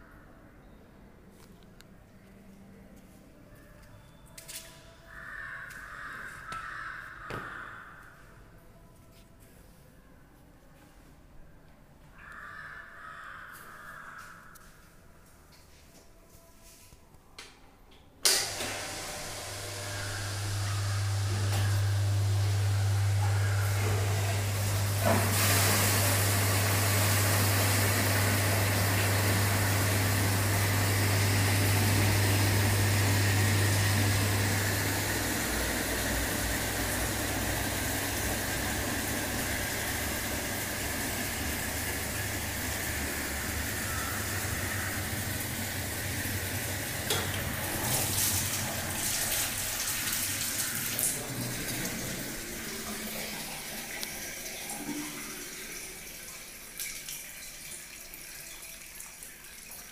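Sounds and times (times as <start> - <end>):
low electric hum: 16.2 - 57.2
water rushing into jars: 18.8 - 59.9.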